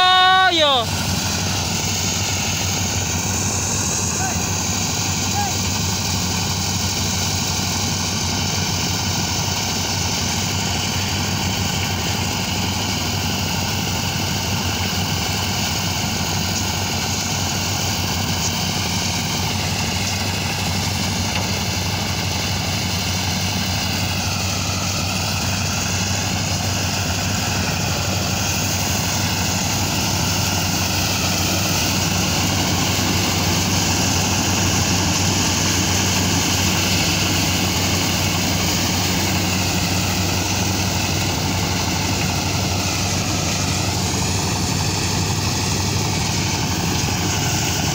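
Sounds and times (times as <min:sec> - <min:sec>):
thresher engine running under load: 0:00.0 - 0:47.9.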